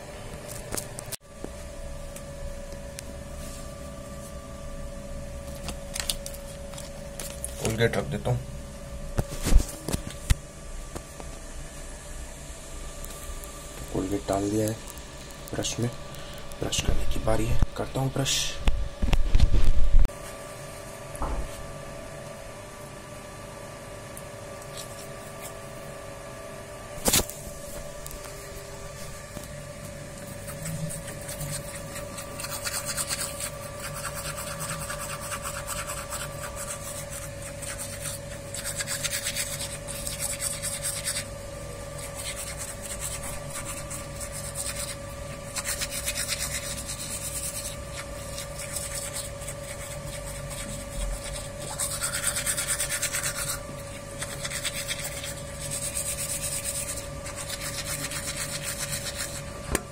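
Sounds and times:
toothbrush scrubbing teeth: 24.6s - 25.7s, 30.1s - 59.5s.

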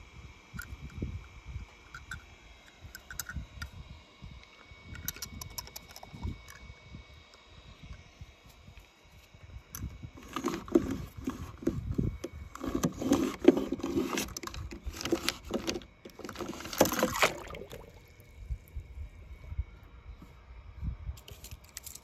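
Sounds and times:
toy splashing into water: 16.8s - 18.2s.

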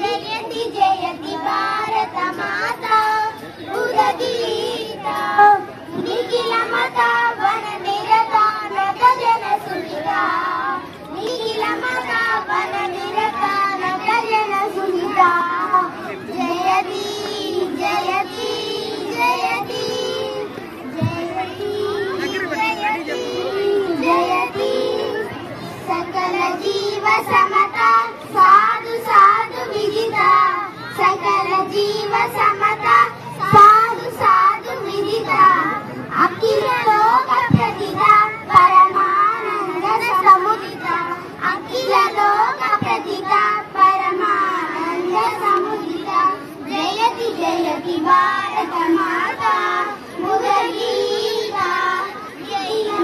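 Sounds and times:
children singing into microphones: 0.0s - 53.0s.

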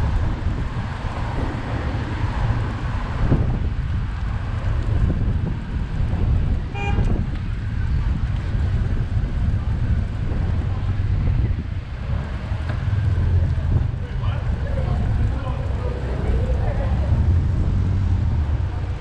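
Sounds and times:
road traffic: 0.0s - 19.0s
wind rumbling on microphone: 0.0s - 19.0s
car horn toot: 6.7s - 7.1s.

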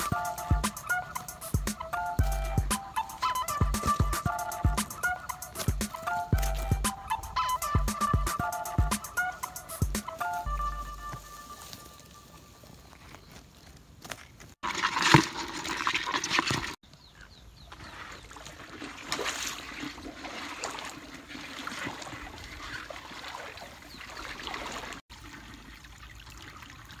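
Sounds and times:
water trickling through channel: 0.0s - 10.0s, 14.6s - 16.8s, 17.7s - 27.0s
water splashing: 14.6s - 16.8s, 17.7s - 27.0s.

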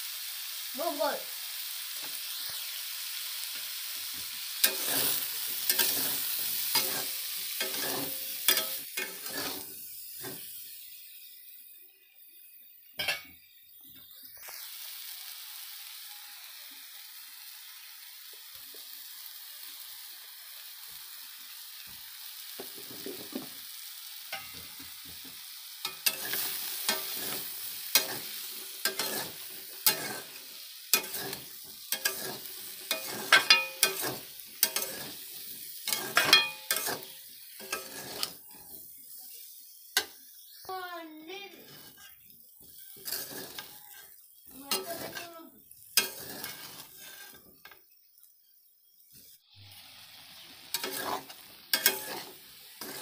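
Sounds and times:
food sizzling in oil: 0.0s - 53.0s
spatula scraping a metal pan: 4.6s - 10.8s, 25.8s - 38.8s, 41.6s - 45.4s, 46.0s - 47.8s, 50.7s - 53.0s.

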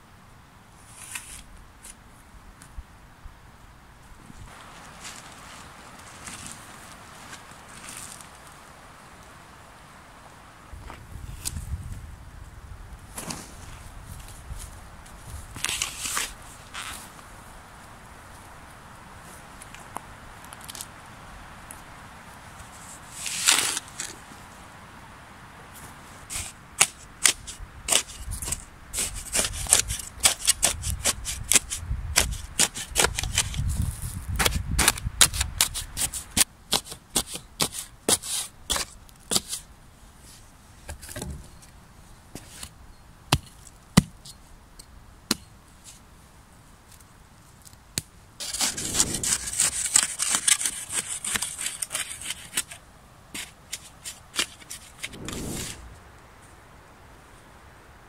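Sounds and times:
gritty scraping of soil: 0.8s - 2.0s, 4.3s - 8.7s, 13.0s - 17.2s, 22.6s - 24.3s, 25.7s - 41.4s, 48.4s - 56.6s
spade cracking roots in soil: 47.6s - 52.8s.

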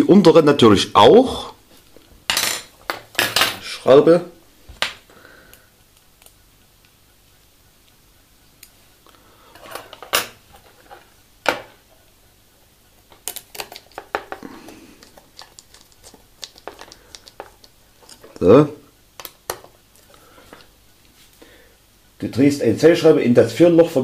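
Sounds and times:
small parts clicking and clinking: 13.0s - 18.4s.

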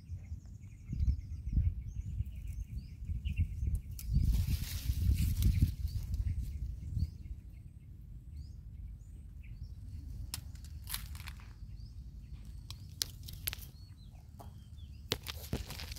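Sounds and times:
wind on microphone: 0.0s - 7.7s
faint bird chirps: 0.0s - 15.9s
twigs and dry leaves crackling: 3.6s - 6.6s, 10.0s - 15.9s.

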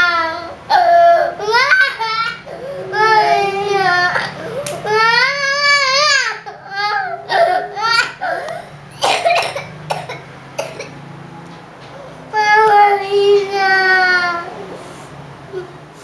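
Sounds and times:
toddler crying: 0.0s - 8.7s, 12.3s - 14.8s
toddler coughing: 7.3s - 11.0s.

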